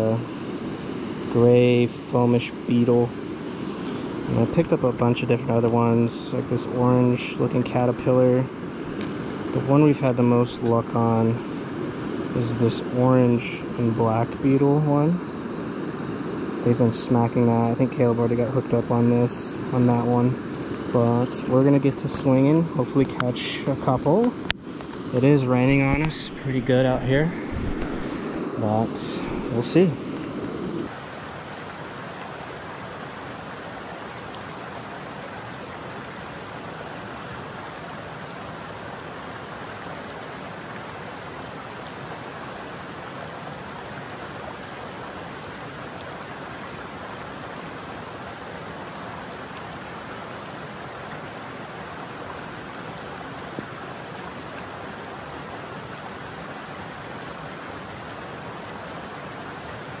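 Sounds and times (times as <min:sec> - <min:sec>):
flowing creek: 0:00.0 - 1:00.0
rain falling: 0:19.4 - 1:00.0.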